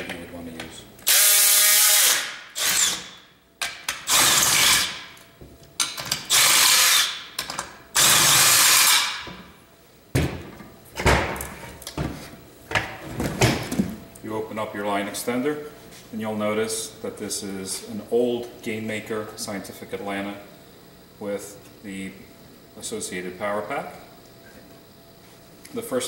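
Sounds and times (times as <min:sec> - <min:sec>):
cordless drill bursts: 0:01.0 - 0:03.2, 0:04.1 - 0:05.0, 0:06.3 - 0:07.2, 0:08.0 - 0:09.2.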